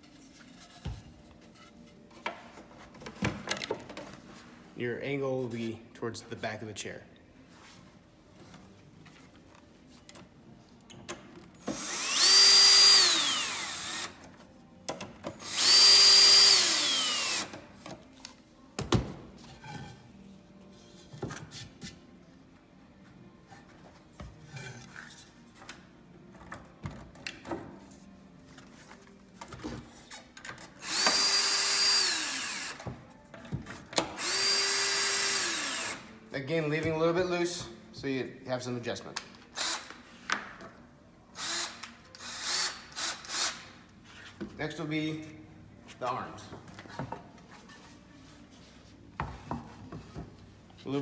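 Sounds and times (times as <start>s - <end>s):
cordless drill whining: 11.8s - 14.2s, 15.4s - 17.5s, 30.8s - 32.8s, 34.2s - 36.0s.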